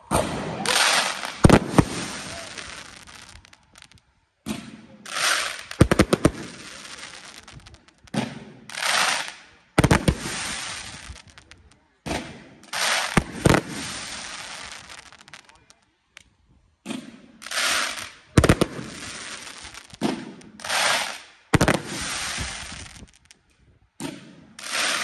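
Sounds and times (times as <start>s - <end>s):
firework shots bursting bangs: 0.0s - 15.5s, 16.8s - 23.3s
firework crackling: 0.0s - 15.8s, 17.2s - 23.6s, 24.4s - 25.0s
firework launch thump and hiss: 16.8s - 23.4s.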